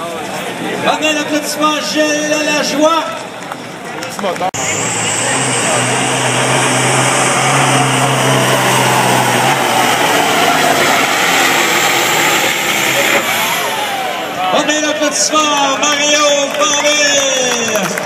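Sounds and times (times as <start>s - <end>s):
diesel engine at full throttle: 4.2s - 18.0s
deep drone: 4.6s - 14.6s.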